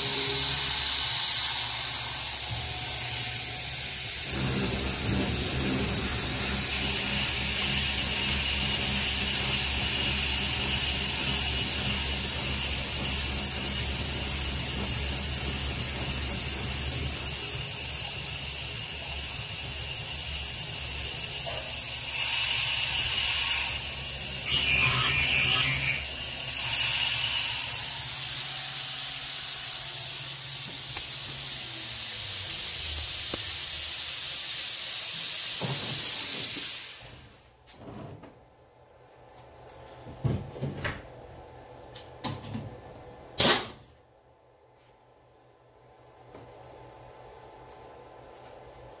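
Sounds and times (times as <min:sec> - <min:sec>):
spindle motor humming: 0:00.0 - 0:15.8, 0:22.0 - 0:28.7
mill cutting metal: 0:00.0 - 0:18.0, 0:21.7 - 0:32.0
coolant spray hissing: 0:00.0 - 0:37.4.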